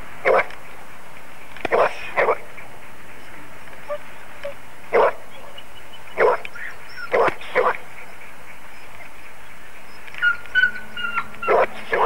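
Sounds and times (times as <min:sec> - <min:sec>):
steady hiss: 0:00.0 - 0:10.2
dog barking: 0:00.2 - 0:00.5, 0:01.7 - 0:02.4, 0:03.8 - 0:05.6, 0:06.2 - 0:07.8, 0:10.2 - 0:12.0.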